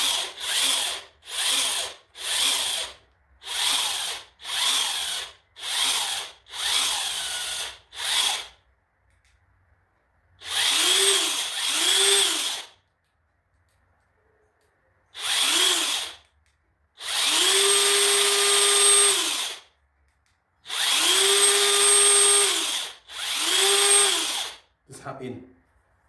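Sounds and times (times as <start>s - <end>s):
impact wrench running free: 0.0s - 8.5s, 10.4s - 12.8s, 15.2s - 16.3s, 17.0s - 19.7s, 20.7s - 24.6s.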